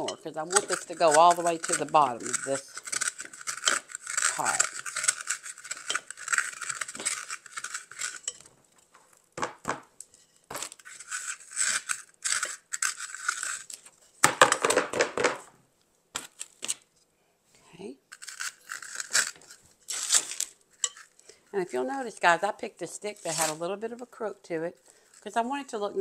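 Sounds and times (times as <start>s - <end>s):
scissors scraping styrofoam: 0.0s - 8.3s, 10.5s - 13.9s, 18.1s - 21.2s, 23.1s - 23.7s.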